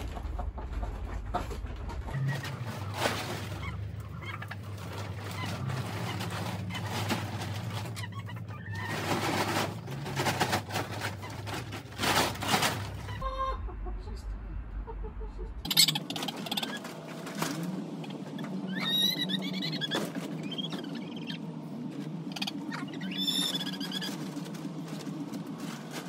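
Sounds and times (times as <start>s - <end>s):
plastic tarp crackling and rustling: 0.0s - 13.2s, 21.9s - 26.0s
chickens clucking: 0.0s - 26.0s.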